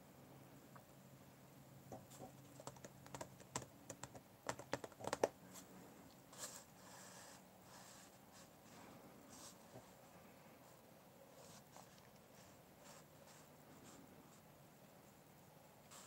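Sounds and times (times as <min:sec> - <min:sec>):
paintbrush tapping plastic palette: 0:01.9 - 0:05.4.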